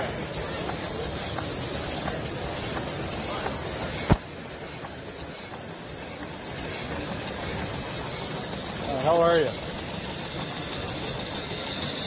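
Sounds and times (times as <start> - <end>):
model engines hissing: 0.0 - 12.0
sharp click: 4.0 - 4.3.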